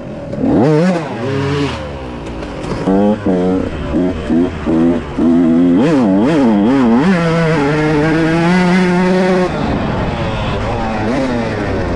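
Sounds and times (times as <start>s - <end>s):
dirt bike engine revving: 0.2s - 11.9s.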